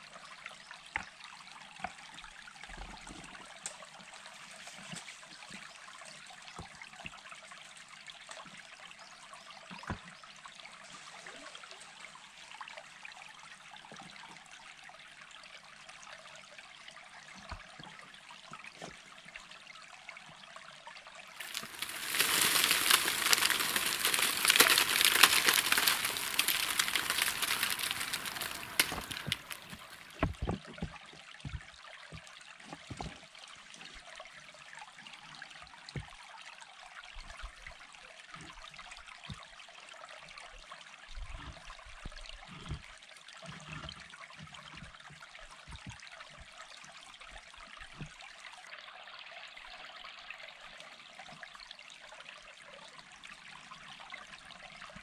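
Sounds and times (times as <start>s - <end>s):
stream water rushing: 21.4s - 30.4s
stones knocking on wall: 21.4s - 30.6s.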